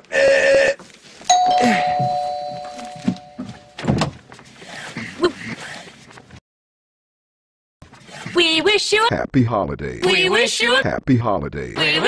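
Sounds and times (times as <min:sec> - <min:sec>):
two-tone door chime: 0:01.3 - 0:03.8.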